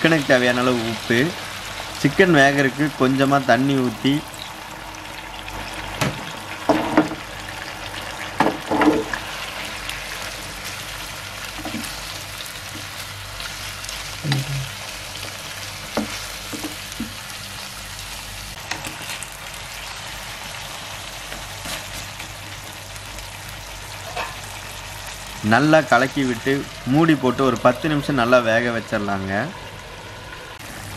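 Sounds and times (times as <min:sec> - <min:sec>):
chicken sizzling in a frying pan: 0:00.0 - 0:30.9
spatula knocking and scraping pan: 0:15.8 - 0:17.2.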